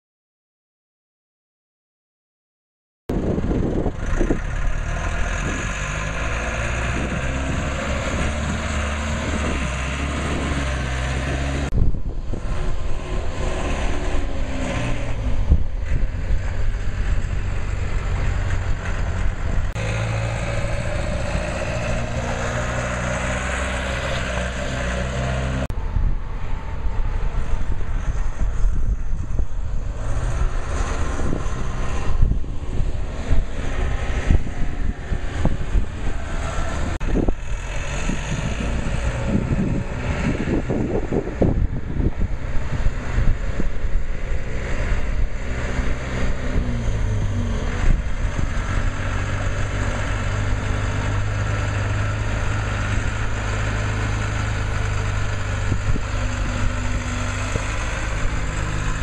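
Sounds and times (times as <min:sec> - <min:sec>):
tug engine running: 0:03.1 - 0:59.0.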